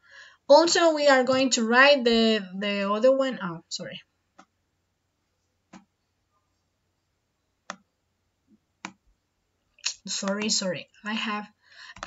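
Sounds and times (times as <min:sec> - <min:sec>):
computer mouse clicks: 0:07.6 - 0:07.9, 0:09.9 - 0:10.6.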